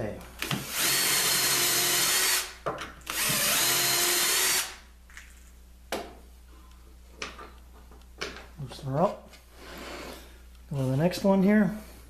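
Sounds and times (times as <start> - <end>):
hand drill boring into plywood: 0.4 - 2.5, 3.1 - 4.8.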